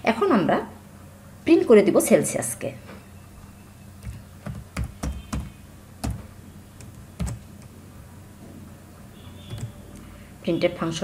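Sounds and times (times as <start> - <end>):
keyboard keystroke clicks: 4.0 - 7.7, 9.5 - 10.1.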